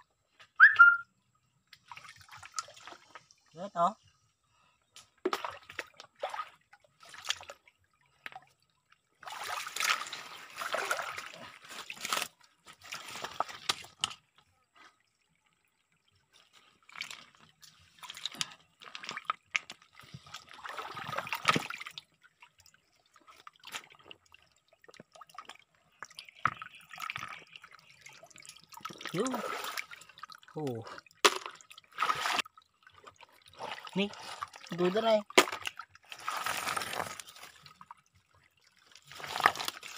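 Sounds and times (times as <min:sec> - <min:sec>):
trickling stream: 0:00.0 - 0:39.9
hands splashing among stones: 0:33.6 - 0:37.8, 0:39.0 - 0:39.9.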